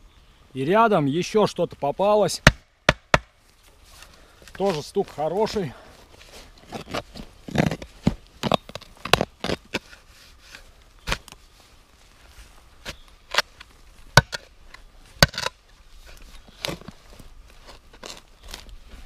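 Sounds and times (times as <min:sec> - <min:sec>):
shovel chopping into soil: 0:06.7 - 0:11.4.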